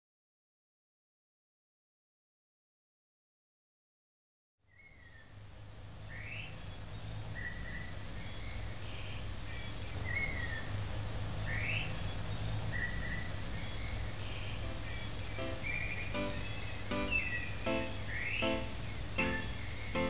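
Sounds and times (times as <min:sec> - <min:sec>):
chirping whistles: 0:12.8 - 0:20.0.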